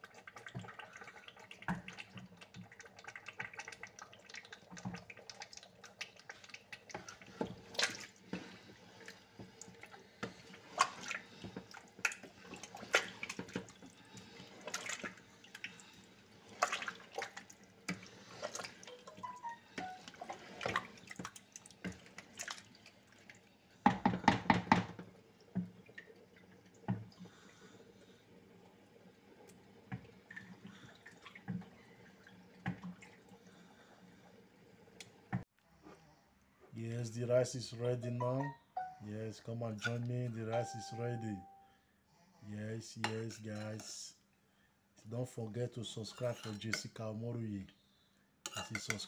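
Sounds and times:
stew being stirred: 0:00.0 - 0:26.2, 0:39.7 - 0:41.6, 0:45.8 - 0:47.0, 0:48.4 - 0:49.0.

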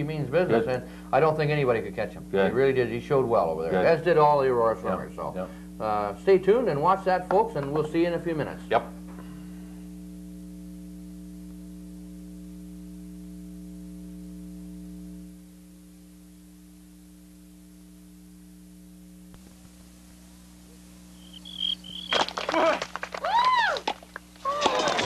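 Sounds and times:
electrical mains hum: 0:00.0 - 0:25.0.

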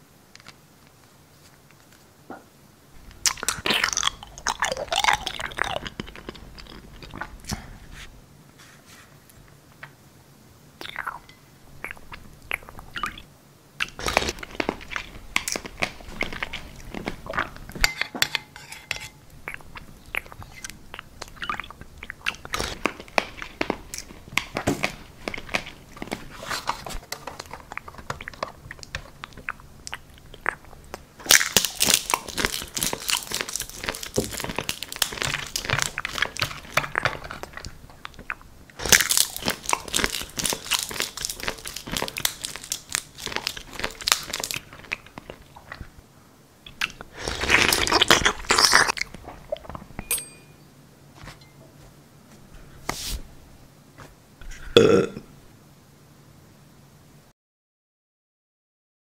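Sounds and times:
crunching and chewing: 0:03.0 - 0:07.8, 0:10.8 - 0:46.0, 0:46.7 - 0:50.0.

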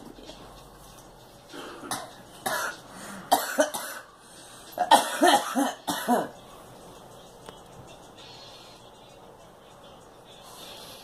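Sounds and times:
woman coughing: 0:01.8 - 0:04.1, 0:04.8 - 0:06.4.

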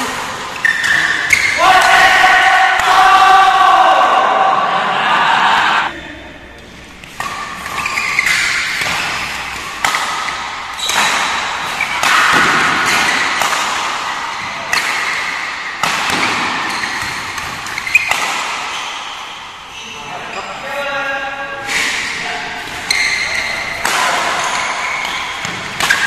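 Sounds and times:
badminton rackets hitting shuttlecock: 0:00.0 - 0:03.0, 0:07.0 - 0:19.7, 0:21.7 - 0:26.0.

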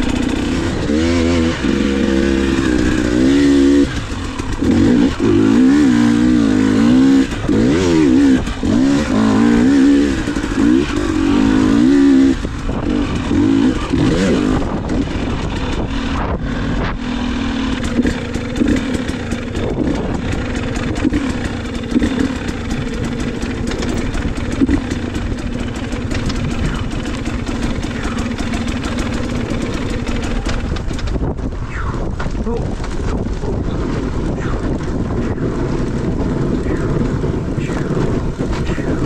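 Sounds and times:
dirt bike engine revving: 0:00.0 - 0:32.1, 0:33.4 - 0:39.0
clatter and knocks: 0:22.0 - 0:27.6, 0:28.9 - 0:31.5.

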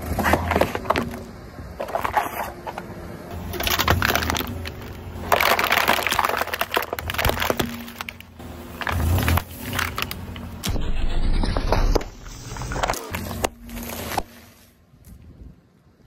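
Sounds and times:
plastic bottles crunching under tyre: 0:00.0 - 0:10.7, 0:11.6 - 0:14.5
low rumble: 0:03.3 - 0:14.2.

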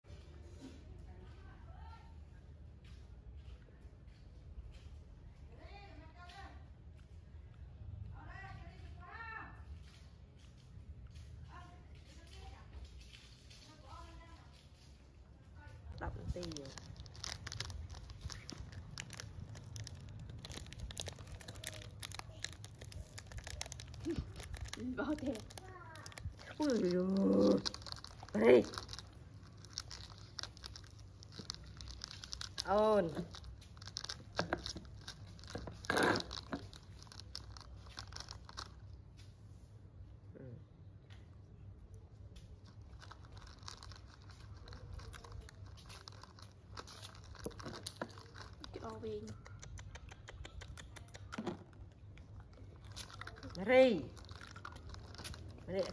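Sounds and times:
crinkling rustles: 0:08.6 - 0:39.7, 0:42.2 - 0:49.6, 0:51.1 - 0:55.9
monkey chewing crunchy snack: 0:12.0 - 0:39.3, 0:42.3 - 0:55.9.

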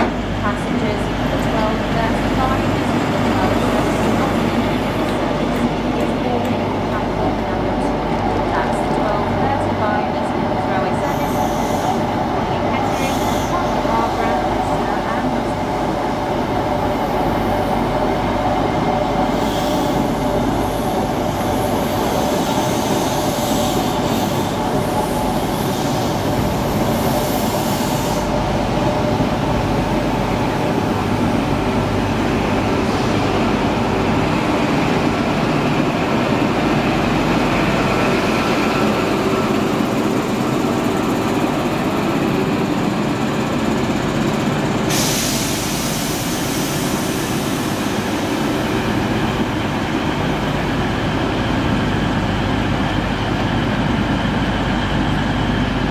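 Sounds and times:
train rumbling past on rails: 0:00.0 - 0:55.9
train hiss: 0:11.0 - 0:15.2, 0:19.2 - 0:29.4, 0:43.6 - 0:51.9.

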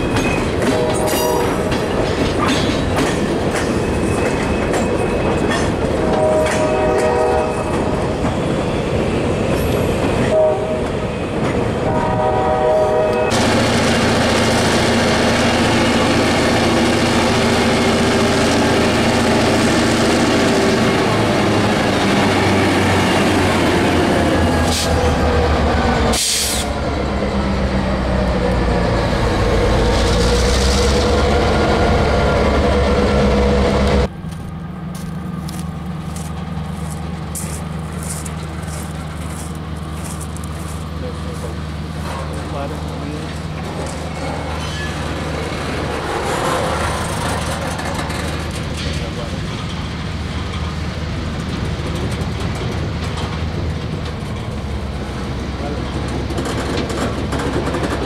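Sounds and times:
diesel locomotive engine: 0:00.0 - 0:58.0
freight cars rolling: 0:13.3 - 0:58.0
wheels clicking over rail joints: 0:42.0 - 0:58.0.

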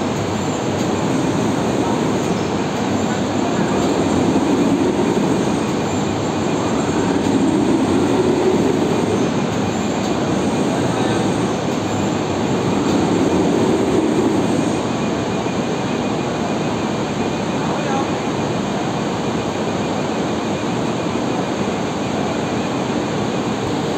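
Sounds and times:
heavy industrial machinery rumble: 0:00.0 - 0:15.4.

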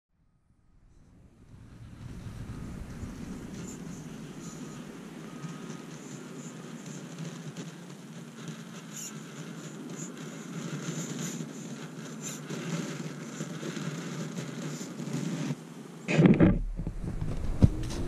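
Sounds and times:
tyres crunching through snow: 0:01.6 - 0:18.0
toy car electric motor whine: 0:01.9 - 0:15.6.

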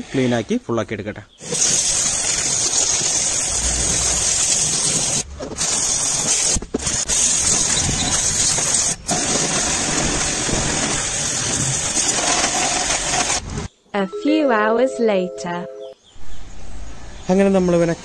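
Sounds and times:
pressure washer spraying metal: 0:01.4 - 0:13.6.

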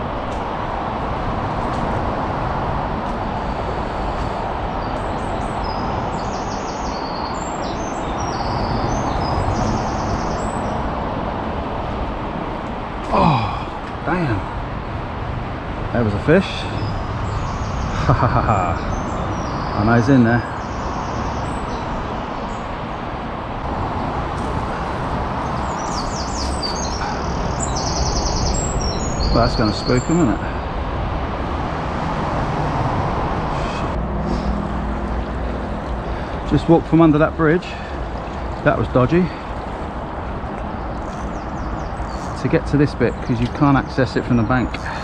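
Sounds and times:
bird chirping: 0:04.8 - 0:10.8, 0:16.4 - 0:22.7, 0:25.4 - 0:30.4, 0:40.7 - 0:45.0
songbird singing and trilling: 0:04.8 - 0:10.8, 0:25.4 - 0:30.4, 0:40.8 - 0:42.4.

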